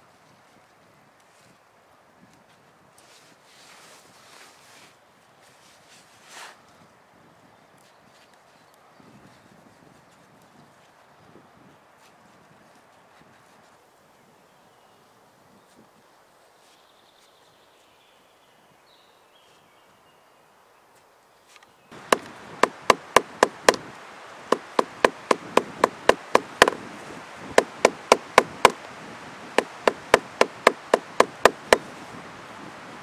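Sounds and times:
soft scraping hiss: 0:02.3 - 0:06.9, 0:20.8 - 0:33.0
sharp clicks: 0:22.0 - 0:26.8, 0:27.6 - 0:28.9, 0:29.6 - 0:31.8.

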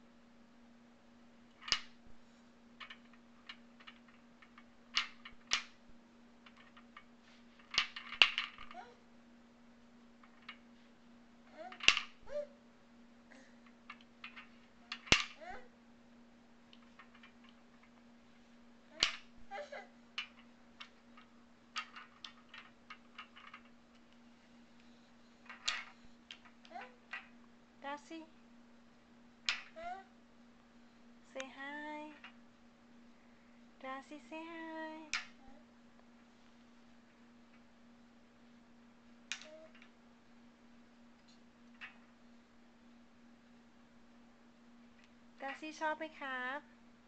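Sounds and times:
wooden beads clacking: 0:02.8 - 0:05.8, 0:06.4 - 0:08.8, 0:13.6 - 0:15.4, 0:16.7 - 0:18.0, 0:20.2 - 0:27.4.

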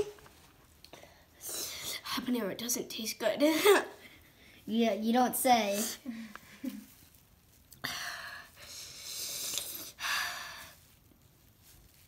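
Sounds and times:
boy breathing hard: 0:07.8 - 0:10.8.

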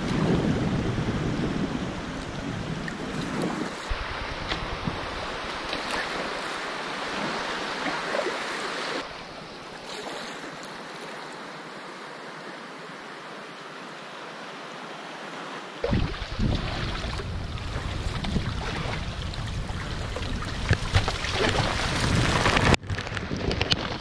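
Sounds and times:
wind buffeting microphone: 0:00.0 - 0:08.1, 0:15.8 - 0:24.0
river water rushing: 0:01.6 - 0:22.5.

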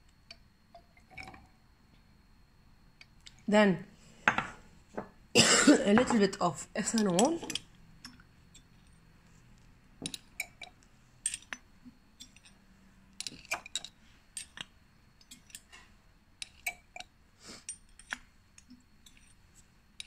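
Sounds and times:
glassware clinking: 0:04.3 - 0:05.1, 0:06.9 - 0:08.9, 0:10.0 - 0:11.6, 0:12.2 - 0:12.6, 0:13.2 - 0:15.8.

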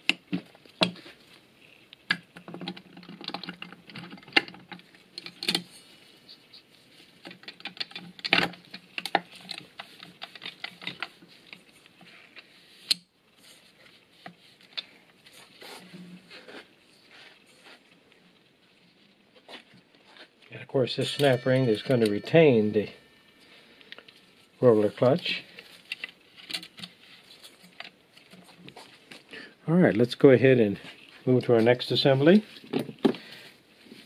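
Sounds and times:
metal parts clicking and clinking: 0:20.9 - 0:24.2.

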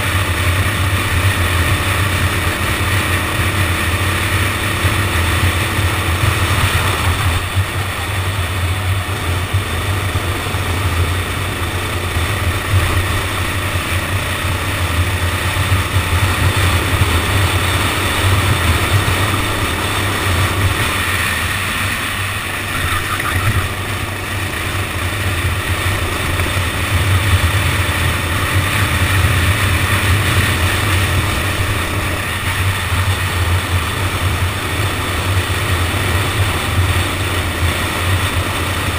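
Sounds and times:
go-kart engine droning: 0:00.0 - 0:38.9
rush of noise: 0:17.8 - 0:26.7.

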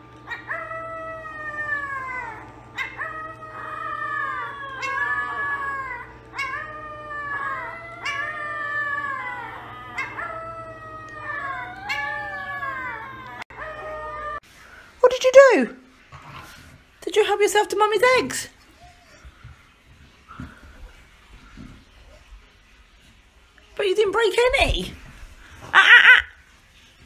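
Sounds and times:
dog howling: 0:00.2 - 0:14.4.

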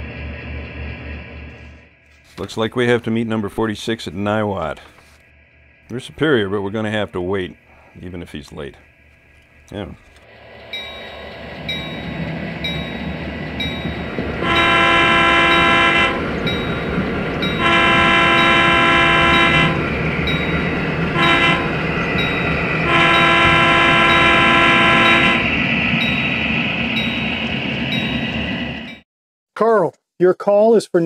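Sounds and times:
diesel engine running: 0:00.0 - 0:28.8
bell dinging: 0:10.7 - 0:14.8, 0:19.3 - 0:20.7, 0:22.1 - 0:22.7, 0:26.0 - 0:29.0
model locomotive horn: 0:14.4 - 0:16.5, 0:17.4 - 0:19.9, 0:21.1 - 0:21.8, 0:22.8 - 0:25.5.

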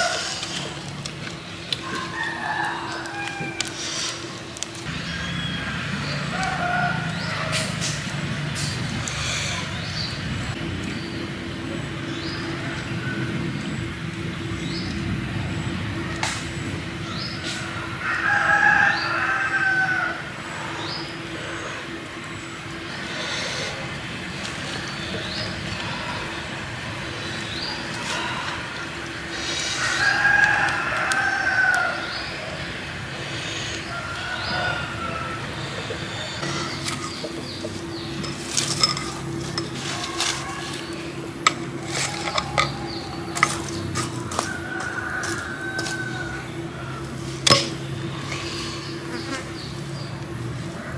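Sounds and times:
hammer raking charcoal embers: 0:00.0 - 0:04.9, 0:36.3 - 0:49.3
steady low hum: 0:00.0 - 0:50.9
rooster crowing: 0:01.8 - 0:03.8, 0:05.3 - 0:07.8, 0:17.4 - 0:20.4, 0:29.7 - 0:32.4, 0:33.8 - 0:36.8, 0:39.3 - 0:48.3.

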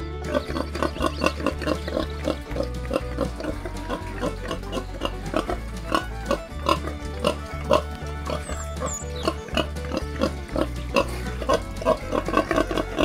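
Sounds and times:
background music with beat: 0:00.0 - 0:13.0
pig grunting: 0:00.3 - 0:06.0, 0:09.2 - 0:13.0.

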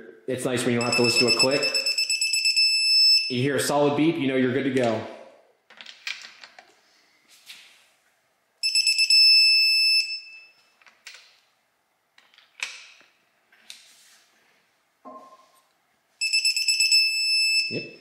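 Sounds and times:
torque wrench beeping: 0:00.8 - 0:03.3, 0:08.6 - 0:10.6, 0:16.2 - 0:18.0.

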